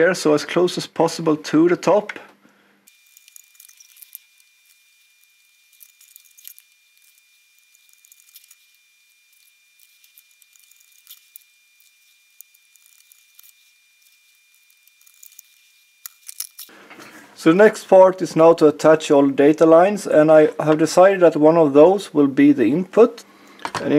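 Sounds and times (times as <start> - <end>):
backing tape peeling: 2.9 - 16.7
rustling of handled tape strips: 2.9 - 16.7.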